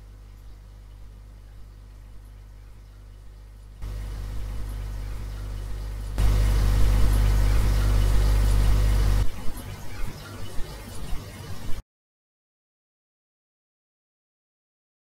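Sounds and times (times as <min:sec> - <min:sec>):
low hum and hiss: 0:00.0 - 0:09.9.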